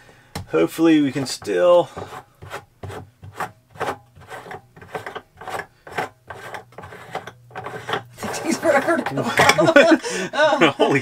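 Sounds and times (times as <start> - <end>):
cap twisting on plastic tank: 1.1 - 9.6.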